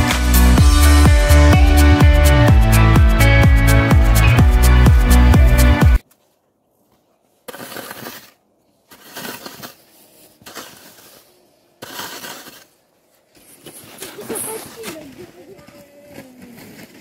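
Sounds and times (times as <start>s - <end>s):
snow shovel scraping snow: 7.2s - 17.0s.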